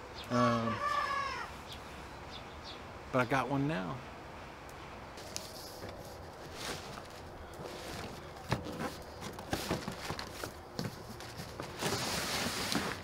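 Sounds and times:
cardboard rustling scrape: 5.2 - 13.0
cardboard box being opened: 6.4 - 13.0.

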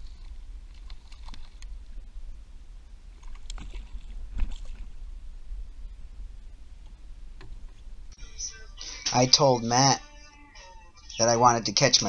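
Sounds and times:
wind rumbling on microphone: 0.0 - 8.2
light water sounds: 3.0 - 5.3
water splashes: 3.2 - 5.1.

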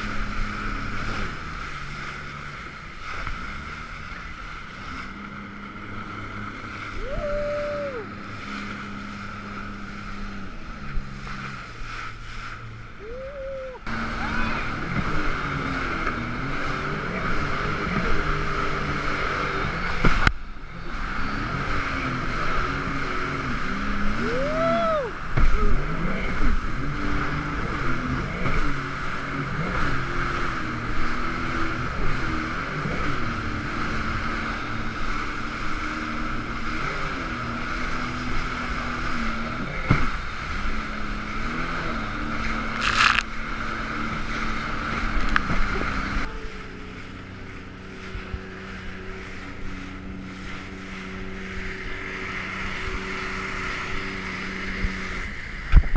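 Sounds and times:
jet ski engine revving: 0.0 - 55.9
rushing water: 0.0 - 55.9
wind on microphone: 29.4 - 55.9.

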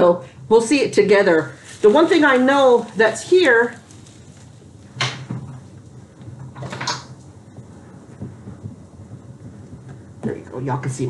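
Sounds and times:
plastic bag rustling: 1.2 - 9.9.

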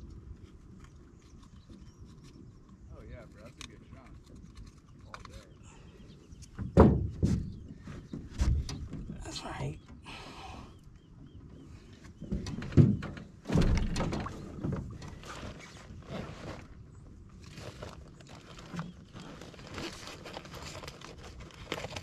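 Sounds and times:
rustling handling noise: 14.8 - 22.0.

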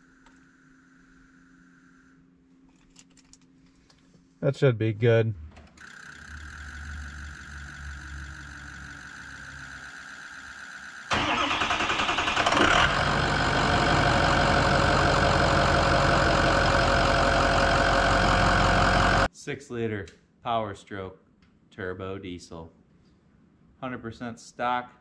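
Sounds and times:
electric fuel pump hum: 5.5 - 19.3
diesel engine cranking and idling: 11.0 - 19.3.

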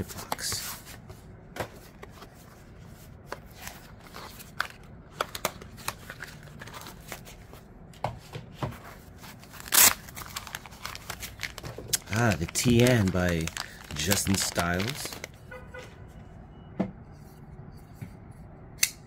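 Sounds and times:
packaging rustling: 1.7 - 7.6, 8.9 - 15.4.

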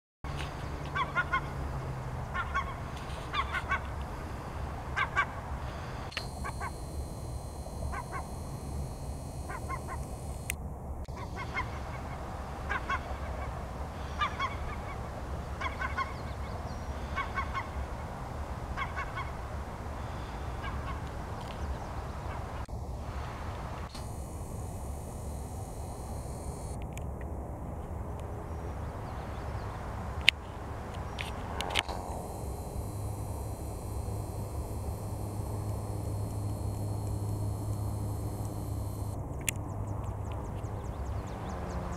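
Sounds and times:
geese honking: 0.9 - 1.6, 2.3 - 4.1.

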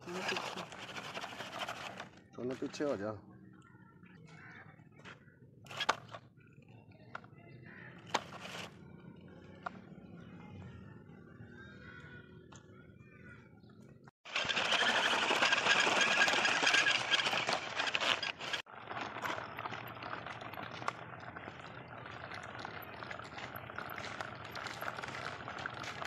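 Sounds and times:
plastic wheels rattling on grit: 0.0 - 3.0, 5.7 - 6.2, 8.1 - 8.8, 14.2 - 26.0.

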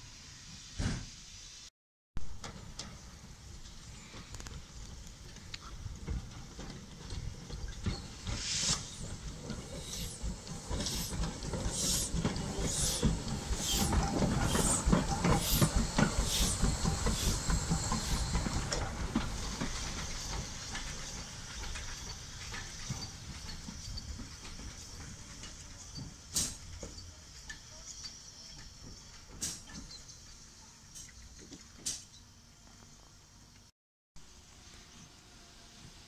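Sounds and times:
steam locomotive chuffing: 2.4 - 31.0
hissing steam: 7.3 - 29.9.

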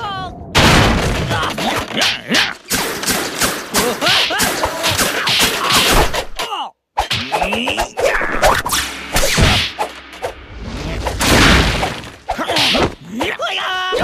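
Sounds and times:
thuds and whacks: 0.6 - 6.4, 7.0 - 9.9, 11.0 - 13.0
whooshes: 8.0 - 12.4
wordless shouts and grunts: 12.3 - 14.0.

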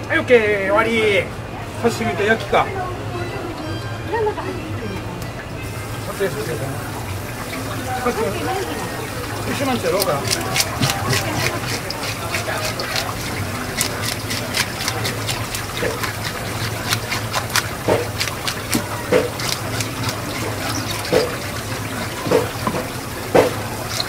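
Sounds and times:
tap water splashing: 6.9 - 24.0
fish scales scraped off: 9.9 - 24.0.

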